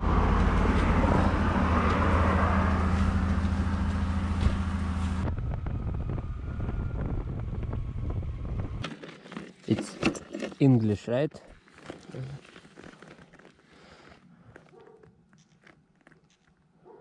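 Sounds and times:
motorcycle engine cruising: 0.0s - 8.8s
wind rushing over microphone: 4.3s - 8.8s.

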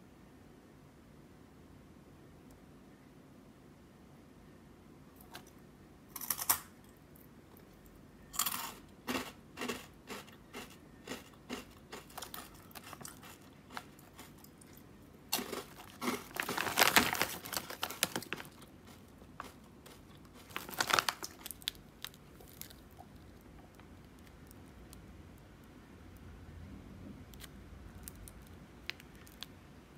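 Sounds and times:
crunchy snack chewing: 7.6s - 25.0s
plastic bag crinkling: 10.6s - 14.4s, 15.3s - 23.5s.

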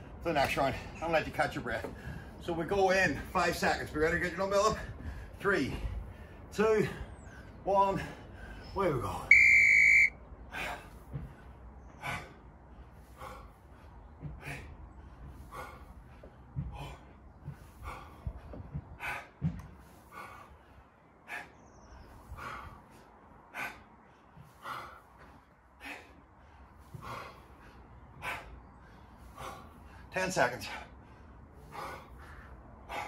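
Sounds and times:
interval timer beep: 9.3s - 10.1s.

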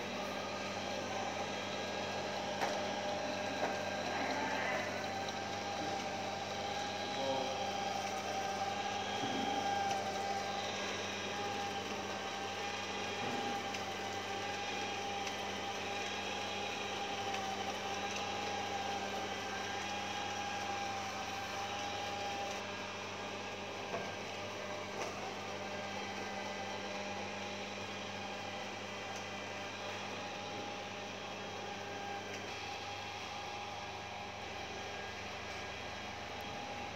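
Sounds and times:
robot vacuum motor hum and whine: 0.0s - 36.9s.

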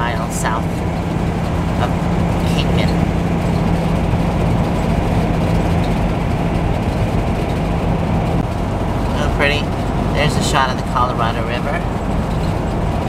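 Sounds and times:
road and engine noise: 0.0s - 13.0s
steady low drone: 0.0s - 13.0s.

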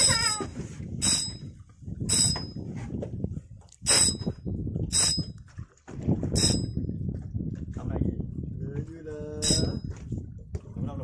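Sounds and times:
wind and water rumble: 0.0s - 11.0s
fishing reel metallic zings: 1.0s - 1.4s, 3.9s - 4.3s, 4.9s - 5.3s, 9.4s - 9.8s.

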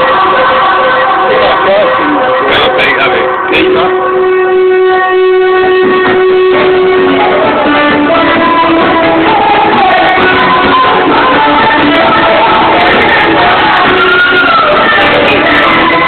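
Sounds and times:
loud music: 0.0s - 16.0s.

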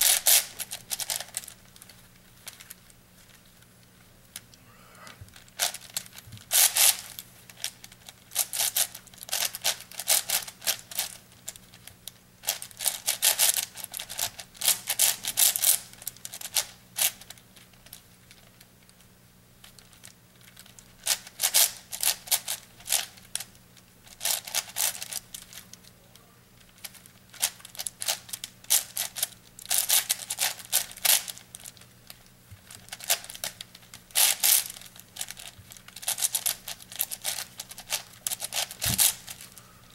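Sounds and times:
faint low hum: 0.0s - 39.9s.

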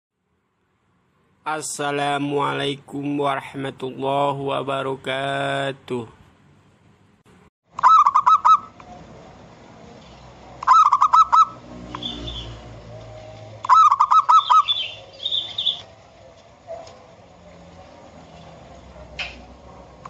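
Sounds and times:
dove cooing: 7.8s - 8.8s, 10.6s - 15.9s.

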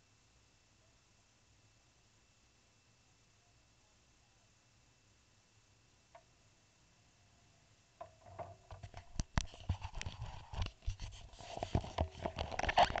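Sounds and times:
camera handling clicks and scrapes: 8.8s - 13.0s.

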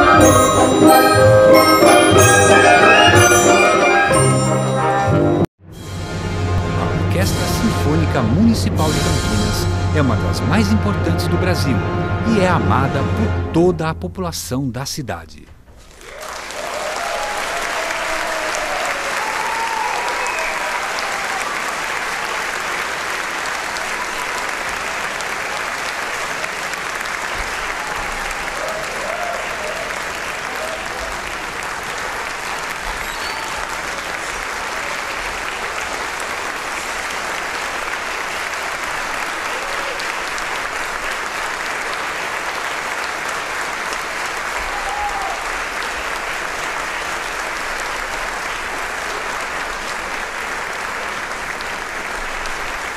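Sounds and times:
audience applauding: 15.8s - 52.9s.

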